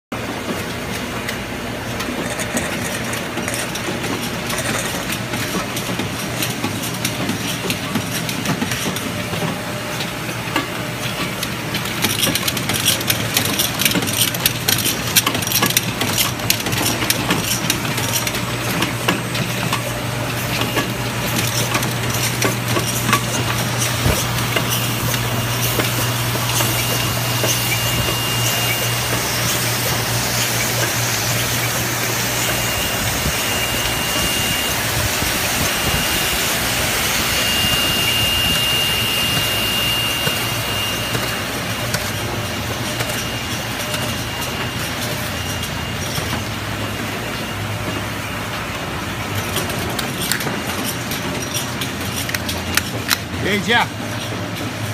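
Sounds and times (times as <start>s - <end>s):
machine hum and hiss: 0.2s - 54.9s
cans clattering on a conveyor: 2.0s - 32.6s
high whine: 16.5s - 49.2s.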